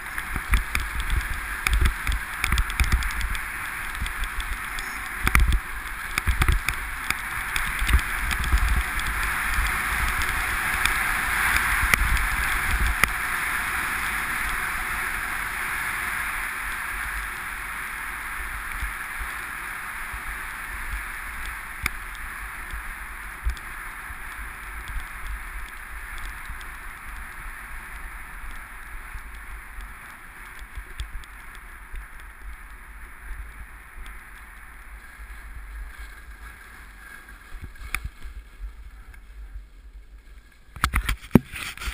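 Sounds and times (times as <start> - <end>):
skis hissing over snow: 0.0 - 41.9.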